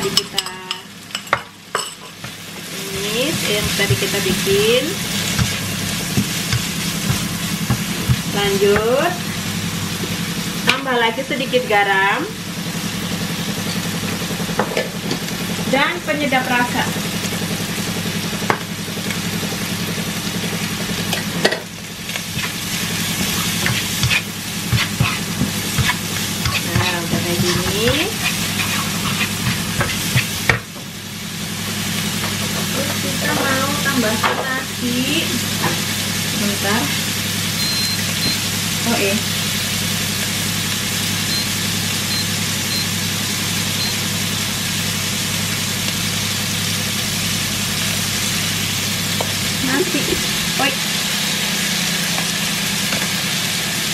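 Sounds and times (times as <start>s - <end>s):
food sizzling in a wok: 0.0s - 53.9s
steady low hum: 1.0s - 37.9s
wooden spatula scraping a pan: 22.2s - 30.4s.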